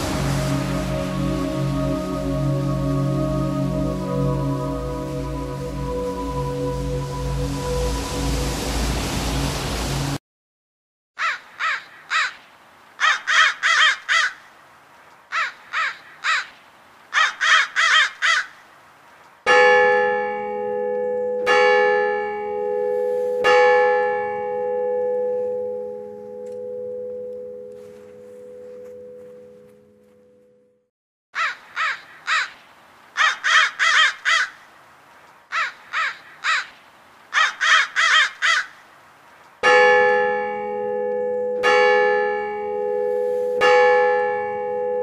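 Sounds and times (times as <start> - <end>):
ambient music: 0.0 - 10.2, 19.5 - 30.6, 39.6 - 45.0
crow cawing: 11.2 - 12.4, 13.0 - 14.5, 15.3 - 18.6, 31.4 - 32.6, 33.2 - 34.6, 35.5 - 38.8
bell ringing: 19.5 - 30.8, 39.6 - 45.0.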